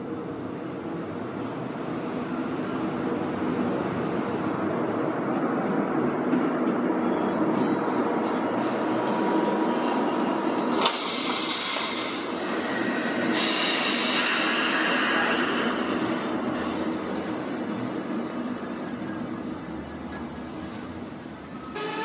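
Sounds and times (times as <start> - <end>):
standing trains humming: 0.0 - 22.0
hissing air: 10.8 - 17.4.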